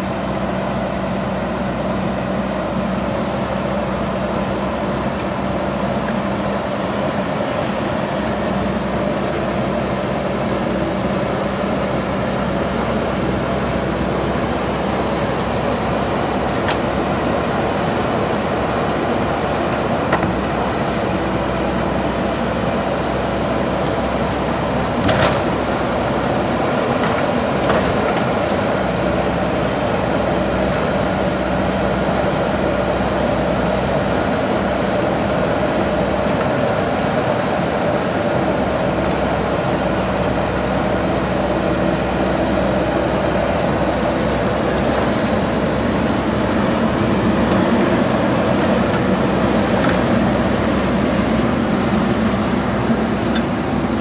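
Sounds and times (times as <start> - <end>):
diesel engine running: 0.0 - 54.0
backhoe arm digging soil: 14.8 - 29.8, 44.3 - 54.0.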